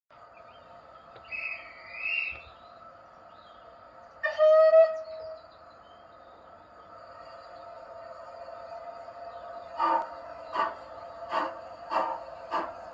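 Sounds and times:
steam locomotive whistle: 4.2s - 5.4s.

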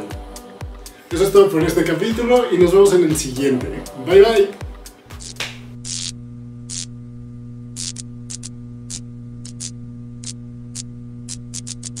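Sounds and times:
electrical hum: 4.6s - 12.0s
static crackles: 5.1s - 12.0s.

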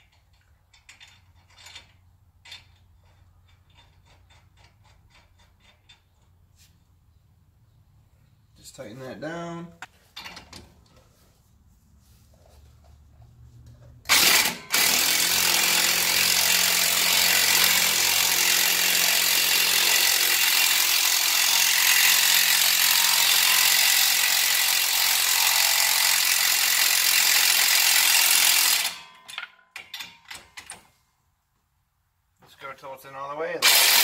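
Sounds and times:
impact wrench hammering: 14.1s - 30.7s, 33.6s - 34.0s.

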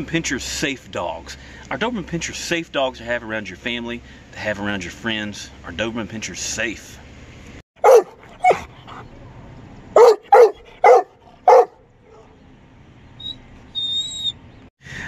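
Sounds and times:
dog barking: 7.8s - 9.0s, 10.0s - 12.4s.

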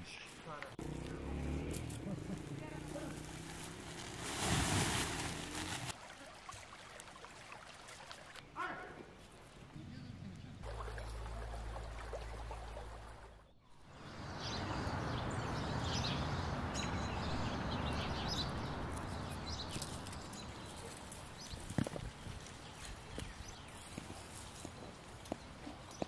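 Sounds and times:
noisy outdoor haze: 0.0s - 6.2s, 6.9s - 26.0s
small birds chirping: 13.5s - 26.0s.

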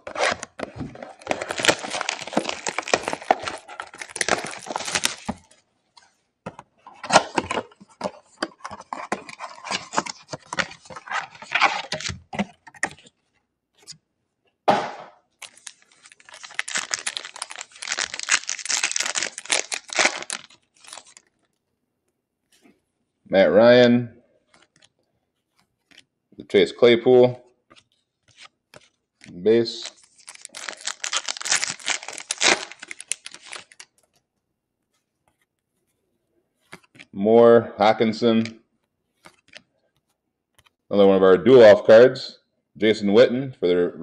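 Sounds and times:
foil wrappers crinkling: 0.0s - 5.6s, 15.4s - 21.4s, 29.7s - 34.0s
cardboard box being torn: 1.2s - 5.3s, 15.5s - 21.1s, 30.3s - 33.8s.

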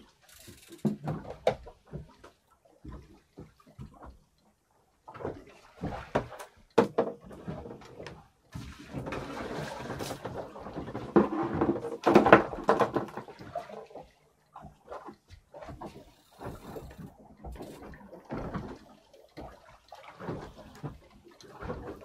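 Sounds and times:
knocks and clatters on boat: 0.0s - 22.0s.

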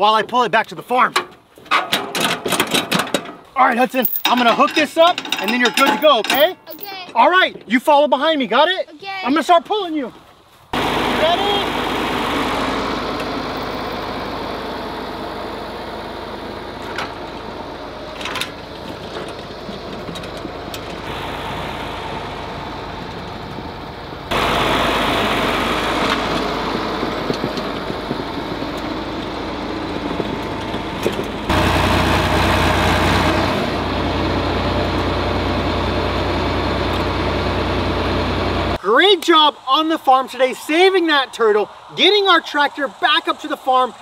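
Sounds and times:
tractor diesel engine running: 3.6s - 7.2s, 10.8s - 38.8s.

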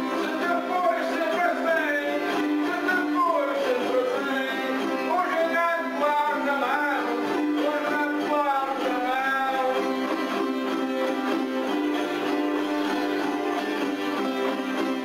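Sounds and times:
man singing: 0.0s - 10.6s
smaller guitar: 0.0s - 15.0s
strummed acoustic guitar: 0.0s - 15.0s.

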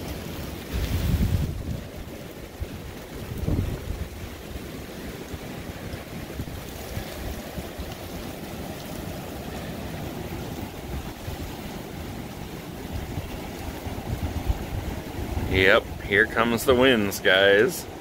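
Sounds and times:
wind buffeting microphone: 0.6s - 16.8s
strong wind rushing: 0.7s - 4.4s, 12.8s - 16.8s.

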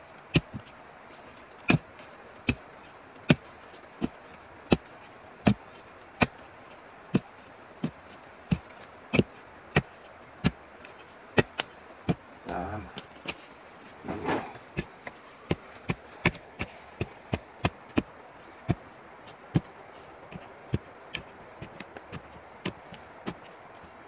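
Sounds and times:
digging tool chopping into soil: 1.6s - 1.8s, 3.2s - 5.6s, 14.0s - 19.7s.

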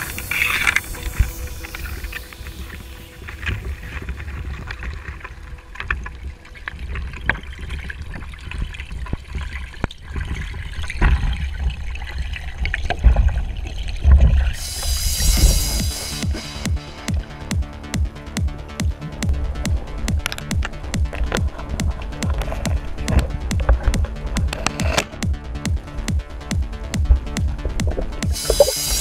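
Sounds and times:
bright hiss: 0.0s - 4.4s, 14.6s - 17.5s, 28.2s - 29.0s
underwater rumbling wash: 0.0s - 29.0s.

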